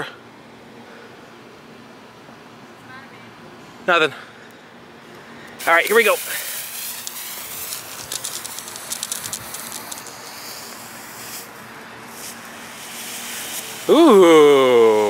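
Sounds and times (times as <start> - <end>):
firework fountain hissing and crackling: 5.6 - 15.0.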